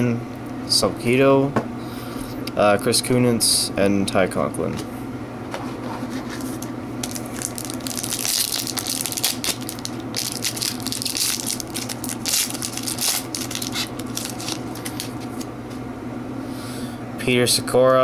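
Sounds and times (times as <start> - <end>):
foil wrapper crinkling and tearing: 7.0 - 15.5.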